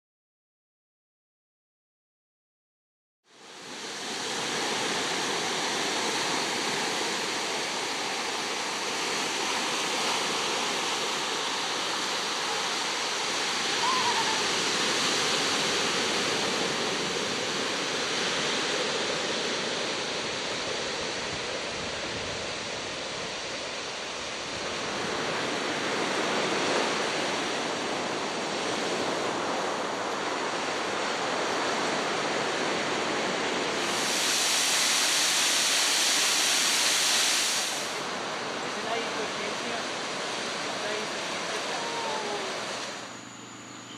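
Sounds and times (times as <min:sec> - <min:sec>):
waves breaking on rocky beach: 0:03.6 - 0:43.1.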